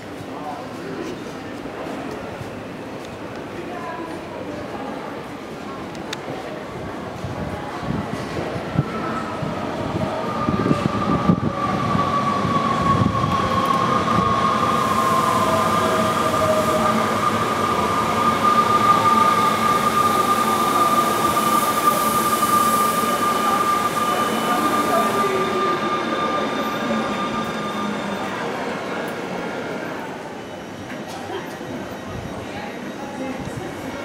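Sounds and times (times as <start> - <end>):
steady high squeal: 10.2 - 30.8.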